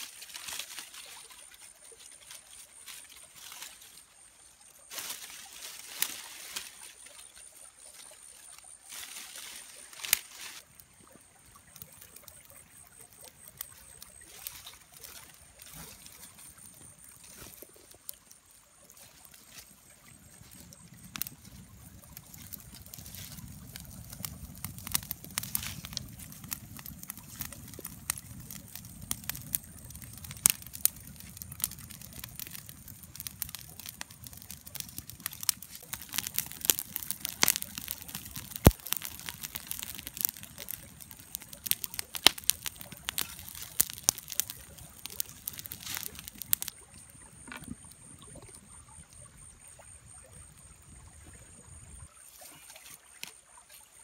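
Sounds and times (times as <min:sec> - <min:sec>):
fire crackling and popping: 0:00.0 - 0:51.1
low rush of flame: 0:20.0 - 0:46.8.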